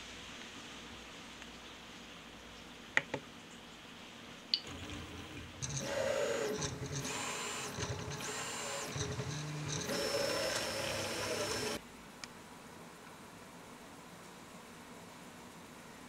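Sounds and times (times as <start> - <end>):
stepper motors whining: 4.6 - 11.8.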